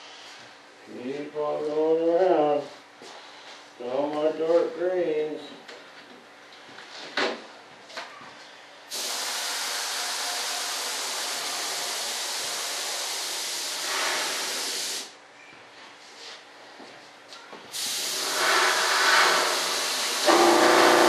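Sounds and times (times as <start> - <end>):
paint spray hiss: 8.9 - 15.1, 17.7 - 21.0.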